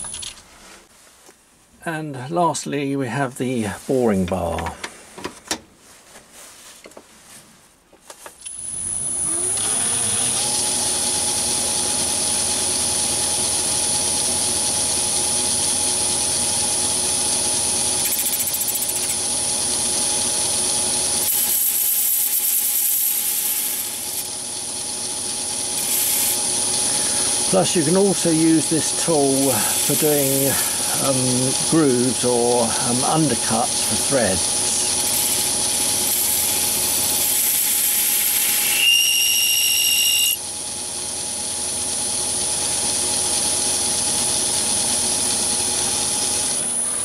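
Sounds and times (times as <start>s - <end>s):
lathe running with high whine: 8.6s - 47.0s
boring bar cutting brass: 18.0s - 19.3s, 21.0s - 24.4s, 25.4s - 40.4s.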